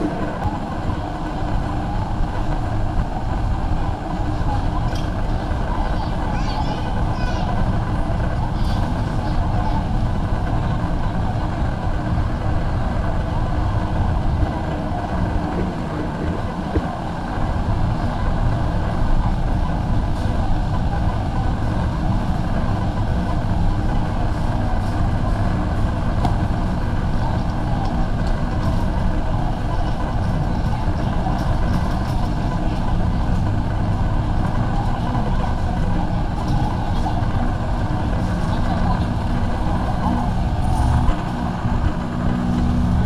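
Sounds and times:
murmur of shoppers: 0.0s - 43.0s
store background rumble: 0.0s - 43.0s.

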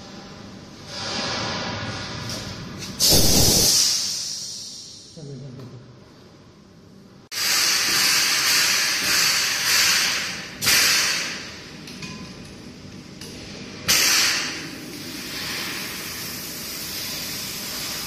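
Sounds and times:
loud air blasts: 2.8s - 5.2s, 7.3s - 11.6s, 13.9s - 18.0s
compressed air hissing: 2.9s - 5.2s, 7.3s - 11.6s, 13.9s - 18.0s.

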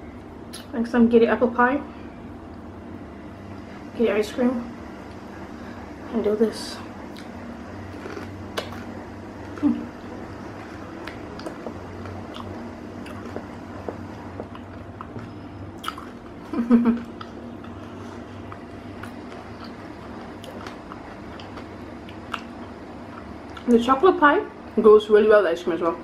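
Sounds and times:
low steady hum: 0.0s - 26.0s
person chewing food: 7.1s - 23.7s.

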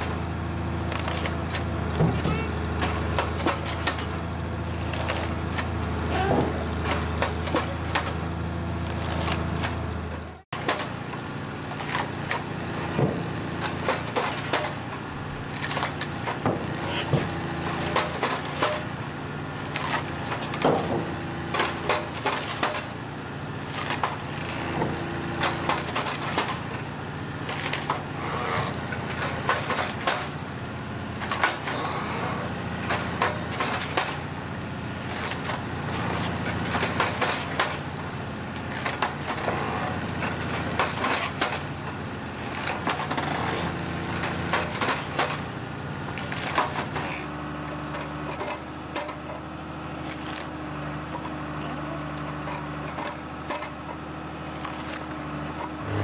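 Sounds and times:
tractor engine running: 0.0s - 56.0s
blade cracking through stems: 0.8s - 1.7s, 4.8s - 5.7s, 8.8s - 9.8s, 15.4s - 16.4s, 19.6s - 20.6s, 23.6s - 24.2s, 27.4s - 28.0s, 31.2s - 31.7s, 35.0s - 35.6s, 36.8s - 39.4s, 42.4s - 43.3s, 46.1s - 47.2s, 50.0s - 50.6s, 54.5s - 55.2s.

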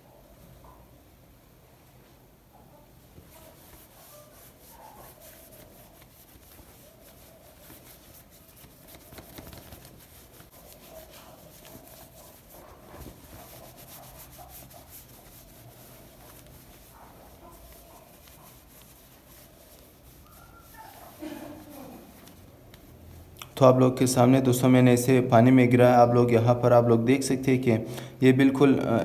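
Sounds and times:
cloth rubbing on smartphone: 3.0s - 23.4s.

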